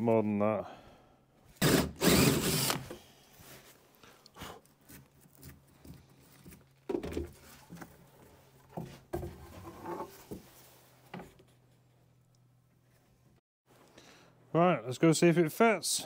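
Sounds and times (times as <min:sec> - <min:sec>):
tools and timber clunking: 0:04.9 - 0:12.1.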